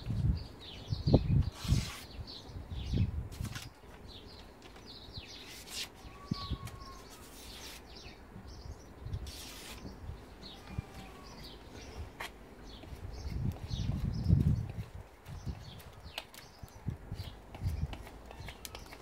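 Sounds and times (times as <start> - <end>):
small birds chirping: 0.0 - 19.0
knife swishing through paper: 1.5 - 2.2, 5.4 - 6.0, 6.8 - 8.0, 9.2 - 9.9.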